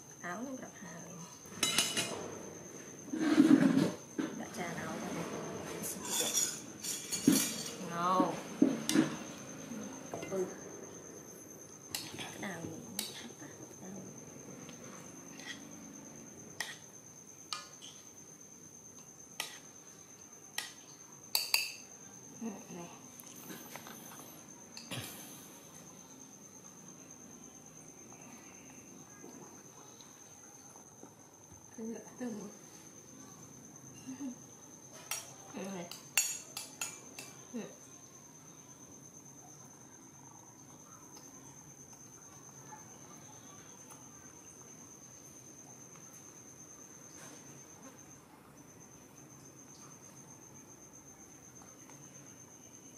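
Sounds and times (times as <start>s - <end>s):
faint high-pitched whine: 0.0s - 52.9s
metal spoon clinking on bowl and wok: 21.3s - 21.9s.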